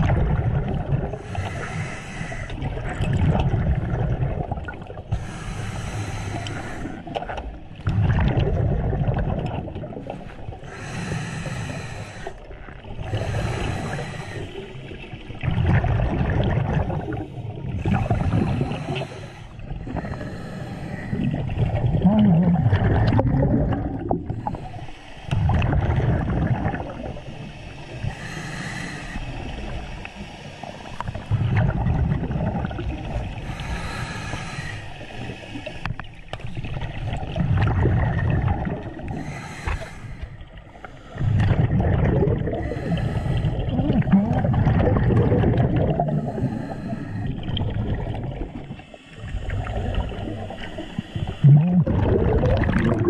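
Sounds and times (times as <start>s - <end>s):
exhaled bubbles gurgling: 0.0s - 53.0s
regulator inhale hiss: 1.2s - 2.6s, 5.1s - 7.1s, 10.2s - 12.4s, 13.1s - 14.9s, 17.8s - 21.5s, 24.3s - 25.3s, 27.0s - 31.3s, 33.4s - 36.0s, 39.1s - 41.2s, 42.5s - 43.7s, 46.1s - 47.5s, 48.6s - 51.4s.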